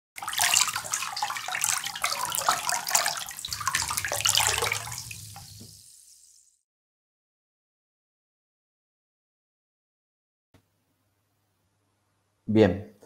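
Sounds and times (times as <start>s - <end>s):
crackling water: 0.2s - 6.6s.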